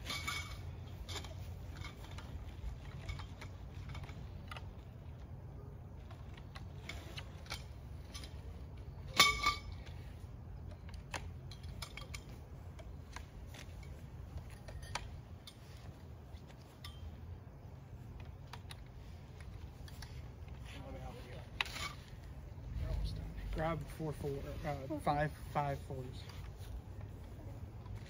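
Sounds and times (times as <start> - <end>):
light clicks and clinks: 6.0 - 17.4
ringing metallic clink: 9.1 - 9.8.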